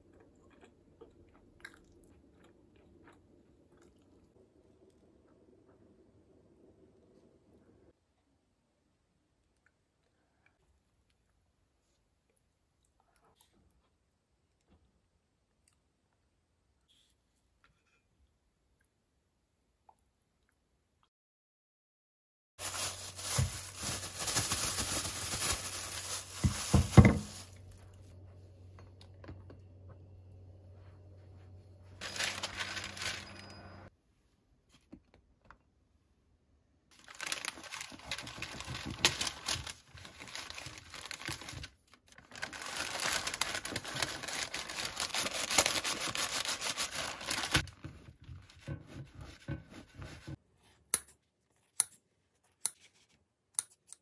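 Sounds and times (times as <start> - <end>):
parchment paper rustling: 22.6 - 27.8, 32.0 - 33.5, 36.9 - 50.8
plastic wrap crinkling: 22.6 - 27.9, 32.0 - 33.5, 36.9 - 47.9.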